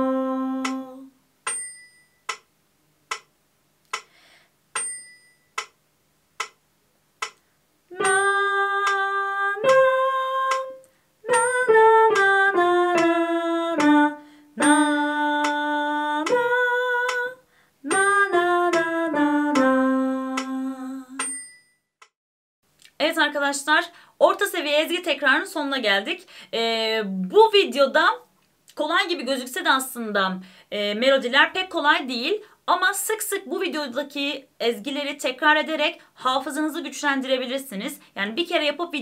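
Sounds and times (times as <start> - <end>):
woman singing: 0.0 - 1.1, 7.9 - 21.2
metronome ticking: 0.6 - 0.8, 1.4 - 2.5, 3.1 - 3.3, 3.9 - 4.2, 4.8 - 5.8, 6.4 - 6.6, 7.2 - 7.4, 9.6 - 9.9, 13.8 - 15.6, 16.2 - 16.4.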